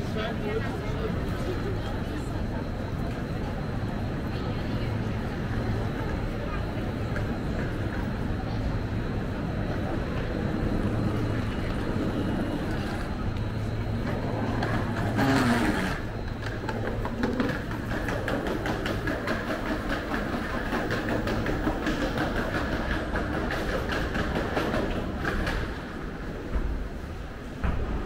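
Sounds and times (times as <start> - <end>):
wheeled suitcase rolling on tiles: 10.3 - 25.9.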